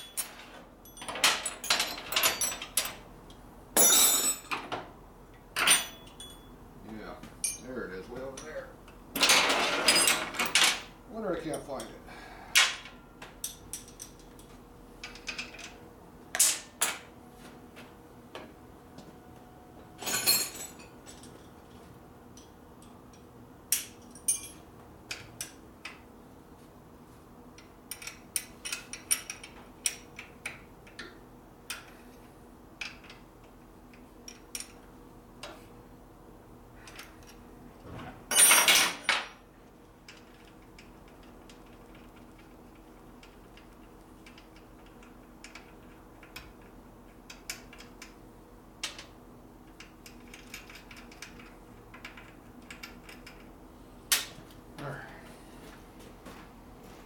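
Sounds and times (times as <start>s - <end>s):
metal tools clinking: 0.0s - 3.0s, 3.8s - 4.6s, 5.6s - 6.5s, 7.4s - 8.6s, 20.0s - 21.5s, 23.8s - 24.6s.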